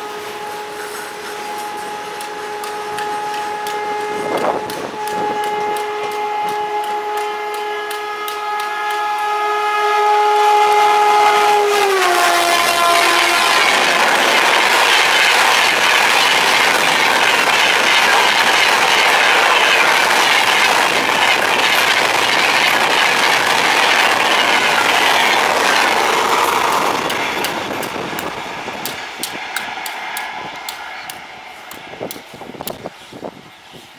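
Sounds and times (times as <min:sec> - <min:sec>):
locomotive horn blast: 0:00.0 - 0:27.1
train coaches running past: 0:00.0 - 0:33.9.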